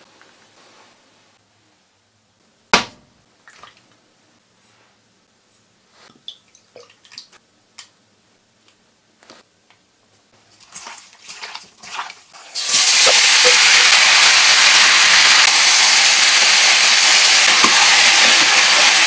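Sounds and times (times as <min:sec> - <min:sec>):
knock on steel mixing bowl: 0:02.8 - 0:03.0.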